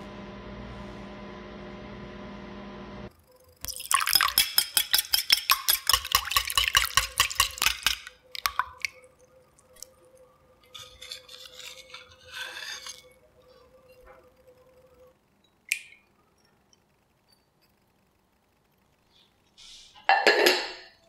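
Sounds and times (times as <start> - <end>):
whisk clicking against ceramic bowl: 4.1 - 8.6.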